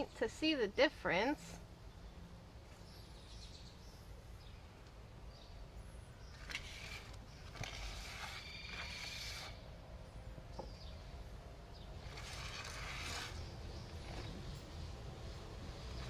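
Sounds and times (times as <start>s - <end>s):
brush of sprigs scratching cardboard: 6.4s - 9.6s, 12.0s - 14.7s.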